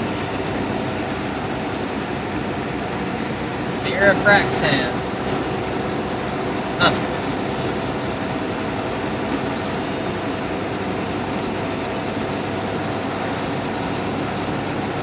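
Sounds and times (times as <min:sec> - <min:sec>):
truck driving drone: 0:00.0 - 0:15.0.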